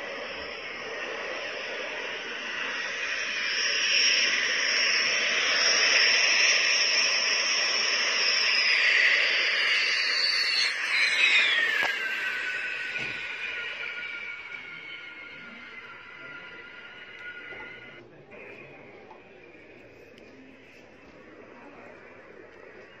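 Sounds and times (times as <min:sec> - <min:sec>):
jet engine rushing and whining: 0:00.0 - 0:18.0.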